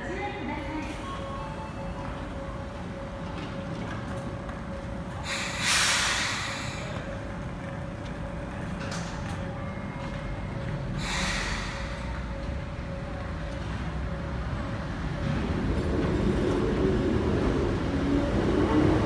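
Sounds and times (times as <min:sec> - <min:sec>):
electric train humming: 0:00.0 - 0:19.0
compressed air hiss: 0:05.3 - 0:06.9.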